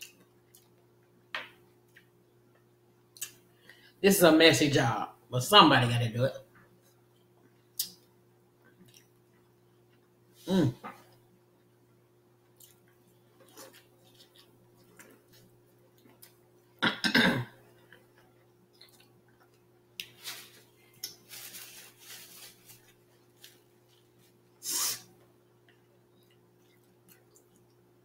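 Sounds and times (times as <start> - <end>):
faint electrical hum: 0.0 - 28.0.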